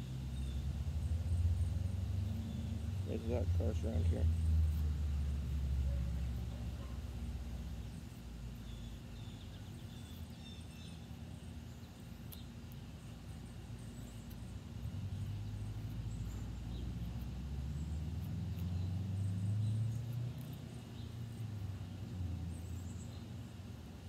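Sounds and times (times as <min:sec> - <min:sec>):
vehicle passing rumble: 0:00.0 - 0:08.4, 0:14.8 - 0:23.6.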